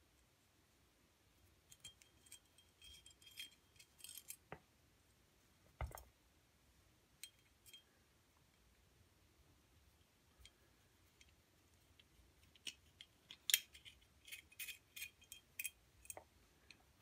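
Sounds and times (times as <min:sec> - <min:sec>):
allen wrench clicks and scrapes: 0:12.5 - 0:16.8.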